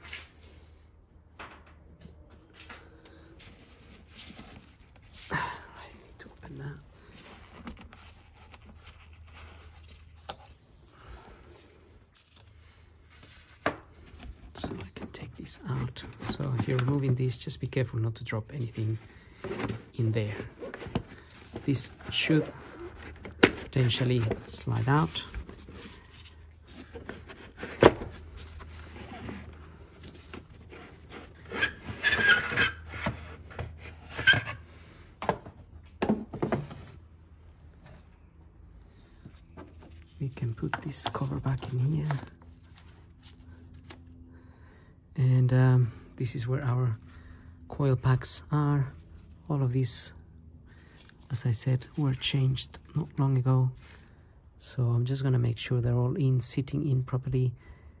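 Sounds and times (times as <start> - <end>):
plastic cap scraping and handling: 13.3 - 17.3, 18.6 - 34.6, 39.5 - 42.3.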